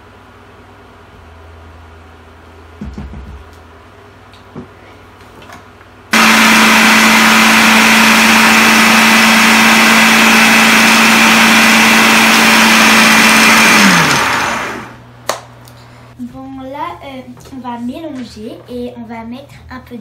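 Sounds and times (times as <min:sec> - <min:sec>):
food processor motor whining: 0:06.1 - 0:15.0.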